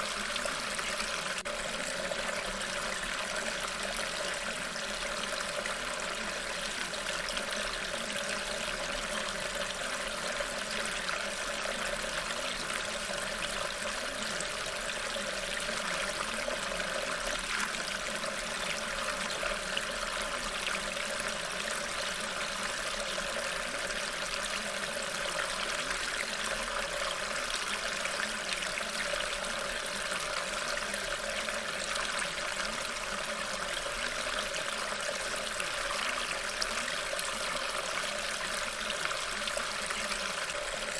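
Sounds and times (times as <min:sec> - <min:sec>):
running water: 0:00.0 - 0:40.9.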